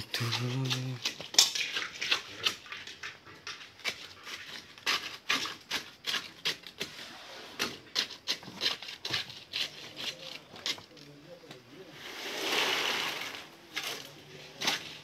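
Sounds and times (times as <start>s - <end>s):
rod knocking in wet concrete: 0.0s - 6.9s.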